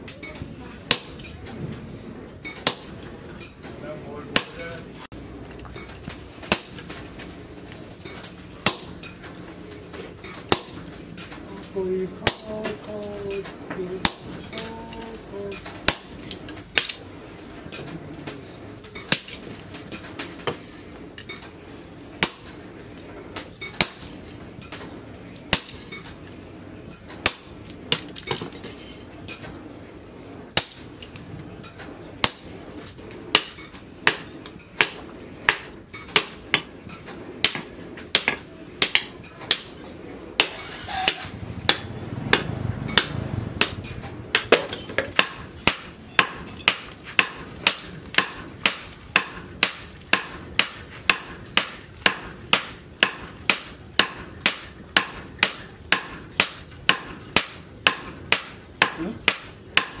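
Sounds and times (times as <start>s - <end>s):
hammer blows on hot steel anvil: 0.0s - 1.6s, 2.4s - 3.6s, 4.2s - 5.2s, 8.1s - 9.3s, 10.2s - 11.4s, 14.0s - 17.0s, 40.4s - 60.0s.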